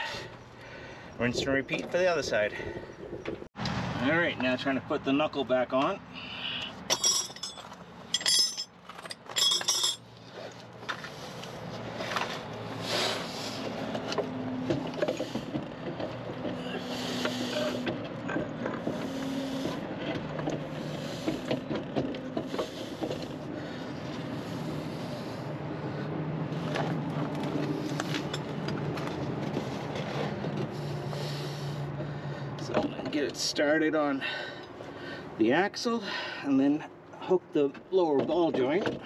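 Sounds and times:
metal tools clinking: 6.9 - 10.1.

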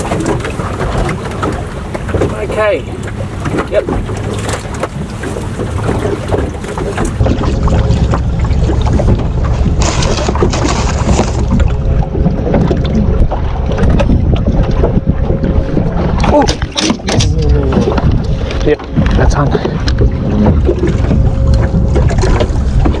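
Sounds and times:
wind buffeting microphone: 0.0 - 23.0.

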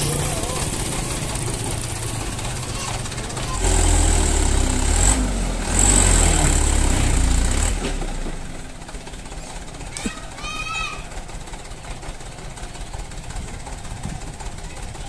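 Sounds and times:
diesel truck engine revving: 0.0 - 10.3.

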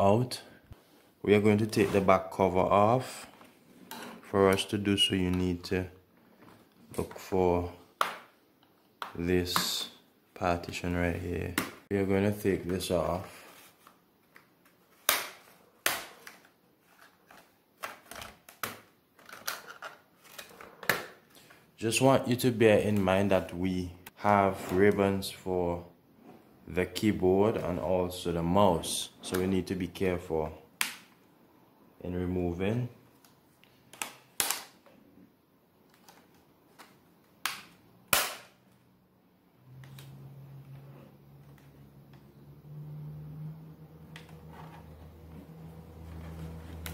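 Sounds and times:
plastic clips snapping: 33.9 - 34.8.

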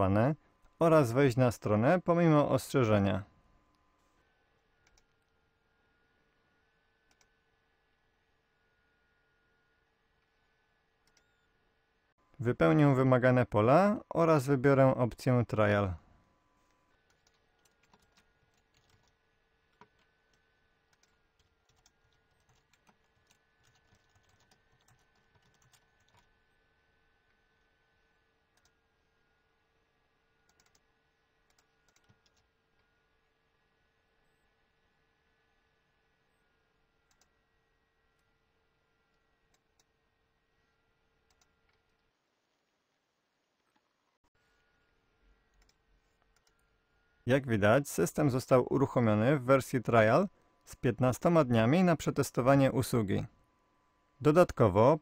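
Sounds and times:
faint steady hum: 0.0 - 55.0
computer mouse clicks: 4.8 - 5.3, 7.0 - 7.3, 11.0 - 11.5, 28.5 - 28.8, 30.5 - 32.9, 37.1 - 37.3, 41.3 - 42.1, 45.5 - 46.6
typing on computer keyboard: 17.1 - 20.1, 20.9 - 26.3, 30.5 - 30.8, 31.5 - 32.5.

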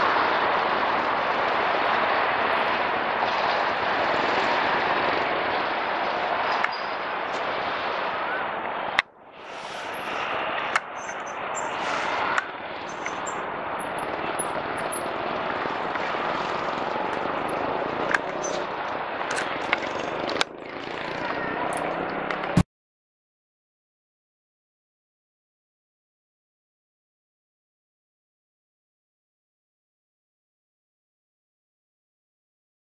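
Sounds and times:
road traffic noise: 0.0 - 22.6.

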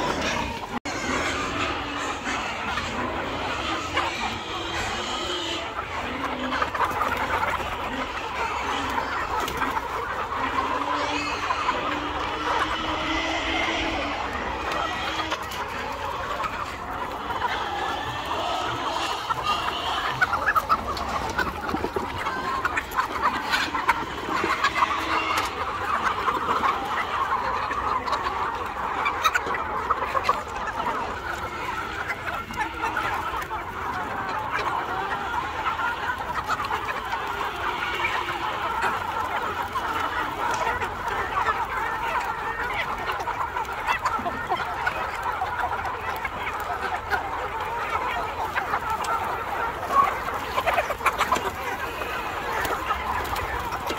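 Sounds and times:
hens clucking: 0.0 - 53.9.

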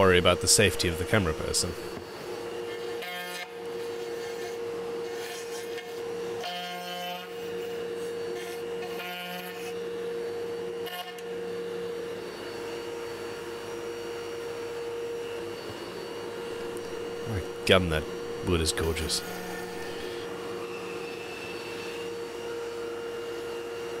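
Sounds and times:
router motor running: 0.0 - 9.9, 15.4 - 24.0
router cutter whine: 0.0 - 24.0.

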